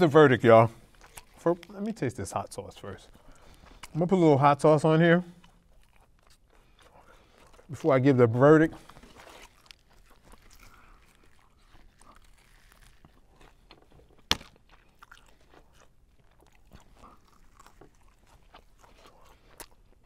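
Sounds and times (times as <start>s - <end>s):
chewing and crunching: 0.0s - 20.0s
sharp crack: 14.2s - 14.8s.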